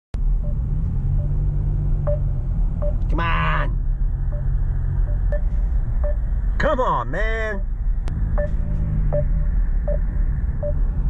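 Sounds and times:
car engine rumble: 0.2s - 11.0s
road noise inside car: 0.2s - 11.0s.

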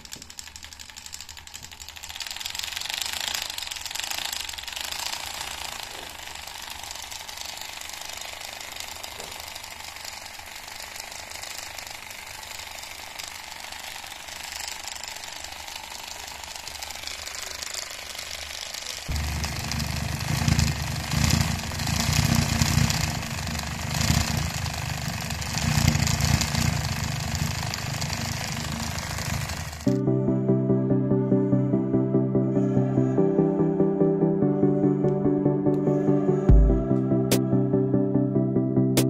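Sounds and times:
model engine clattering: 0.0s - 29.9s.

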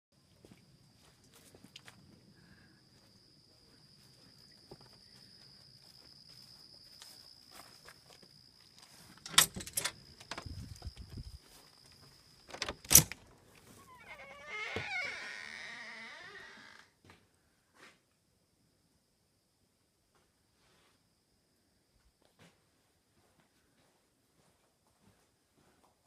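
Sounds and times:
door latch and handle clattering: 9.2s - 10.6s, 12.5s - 13.3s
soft footsteps: 23.2s - 26.0s.

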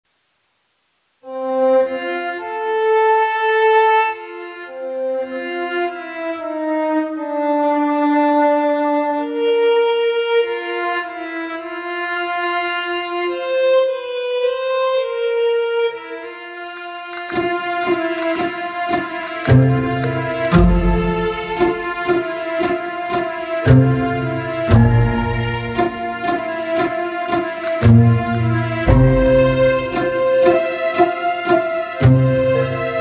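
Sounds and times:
slow violin-like instrumental music: 1.2s - 33.0s.

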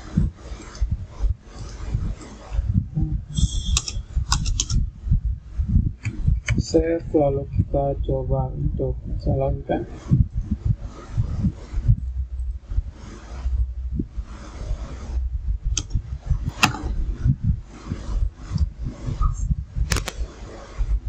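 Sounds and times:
low steady background rumble: 0.0s - 21.0s
mouse and keyboard clicks: 3.5s - 4.8s, 19.9s - 20.2s.

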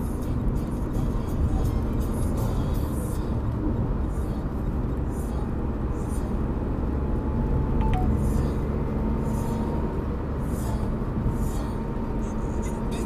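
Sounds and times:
car engine and road noise: 0.0s - 13.0s
two-note beep: 7.8s - 8.4s.

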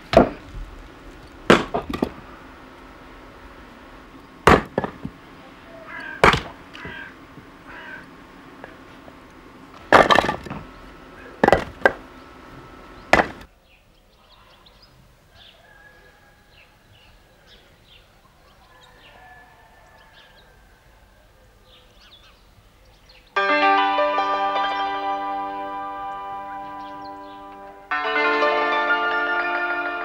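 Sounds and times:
axe splitting firewood: 0.0s - 2.3s, 4.4s - 5.2s, 5.9s - 7.5s, 9.8s - 12.1s, 13.0s - 13.5s
bird chirps: 12.0s - 19.1s, 26.6s - 27.8s.

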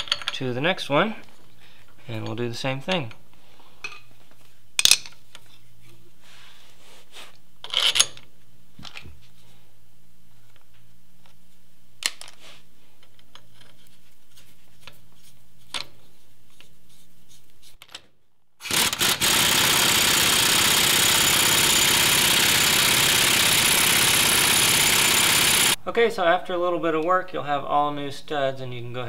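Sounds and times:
impact wrench hammering: 18.6s - 25.8s.

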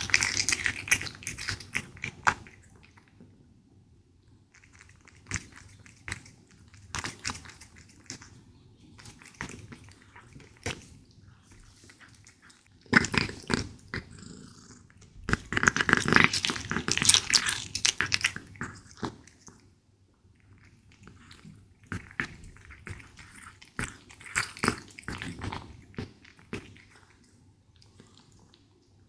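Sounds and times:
cat chewing wet food: 0.0s - 3.4s, 4.5s - 14.4s, 15.0s - 19.7s, 20.3s - 29.0s
cat purring: 4.9s - 19.4s.

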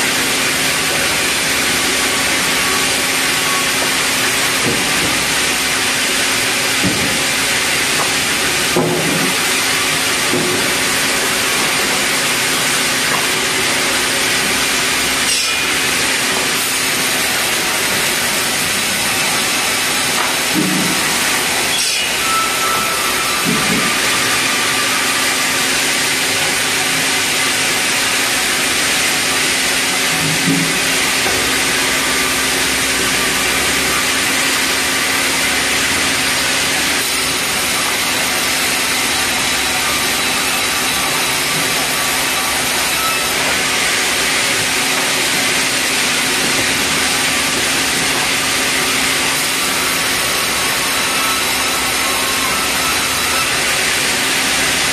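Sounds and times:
band saw cutting timber: 0.0s - 54.9s.

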